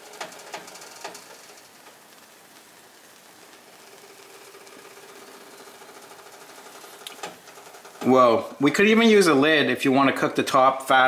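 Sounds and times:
omelette sizzling in frying pan: 0.0s - 8.7s.

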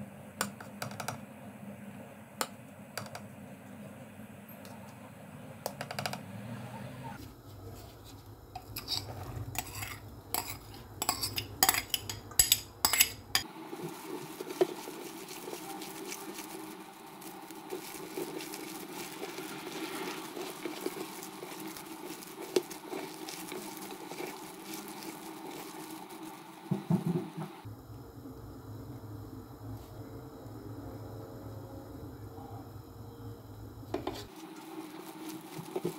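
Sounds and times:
hand mixing food: 7.2s - 27.7s, 34.0s - 35.9s.

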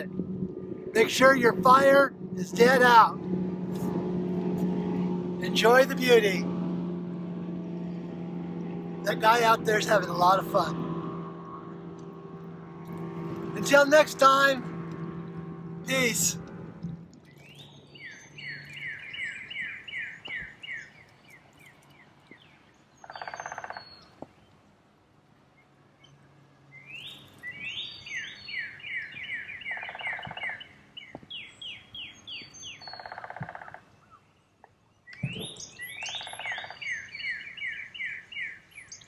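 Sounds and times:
low buzzy bird calls: 12.9s - 24.6s, 25.5s - 39.0s.

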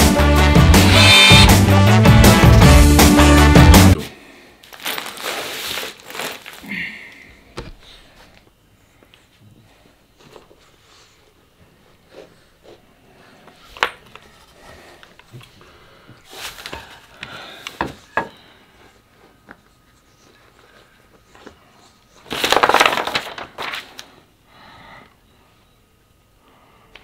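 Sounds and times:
plastic bag crinkling: 4.6s - 6.8s, 22.3s - 24.0s
paper sheet rustling: 4.7s - 6.6s, 22.2s - 24.1s.

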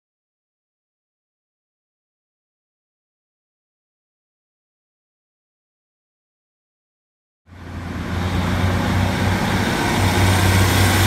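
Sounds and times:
diesel engine humming: 7.5s - 11.0s.

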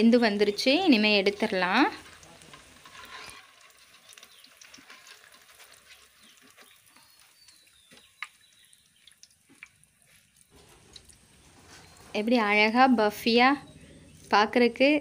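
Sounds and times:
hot oil crackling in a wok: 0.0s - 11.6s
oil dripping into pan: 0.2s - 11.4s
small ticks and clicks: 1.9s - 11.2s.

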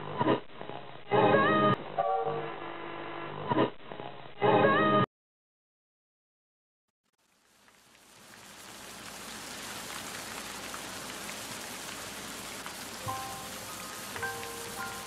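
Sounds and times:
steady rain falling: 7.2s - 15.0s
soft music notes: 13.0s - 15.0s.

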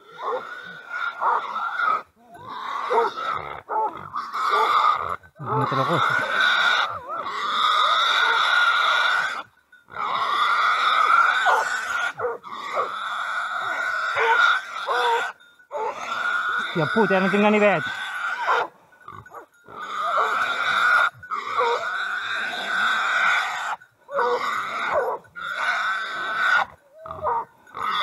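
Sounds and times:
low growling: 0.0s - 8.8s, 19.2s - 27.4s
boar squealing: 0.0s - 28.0s.

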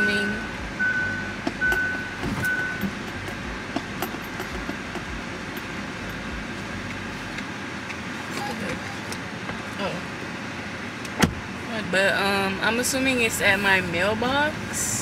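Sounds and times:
car warning chime beep: 0.0s - 3.0s
car cabin noise: 0.0s - 15.0s.

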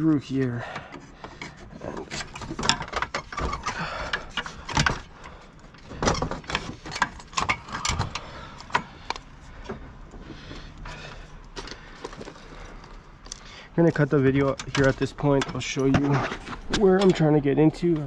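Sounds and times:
cable handling scrapes and rustles: 0.0s - 18.0s.

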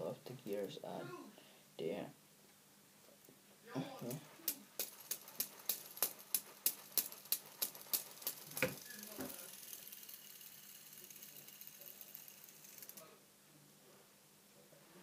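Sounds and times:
fidget spinner whirring: 3.9s - 13.2s
fidget spinner clicking: 4.0s - 13.1s.

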